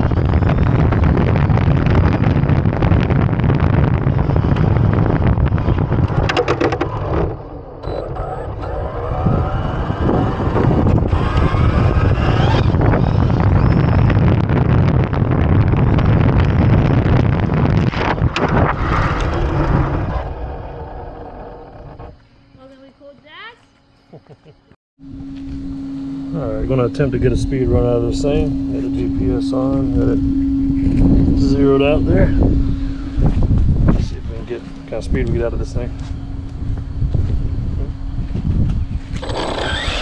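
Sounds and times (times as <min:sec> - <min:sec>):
wind rumbling on microphone: 0:00.0 - 0:22.4, 0:25.0 - 0:40.0
rc truck motor whining: 0:04.0 - 0:14.3, 0:39.1 - 0:40.0.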